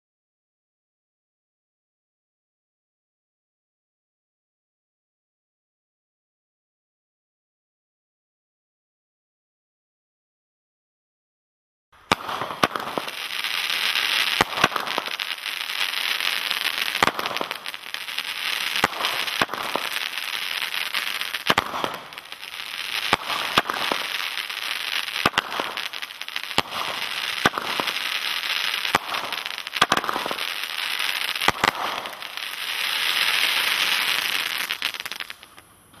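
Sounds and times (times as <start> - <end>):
fireworks crackling: 12.0 - 36.0
fireworks shots: 12.0 - 36.0.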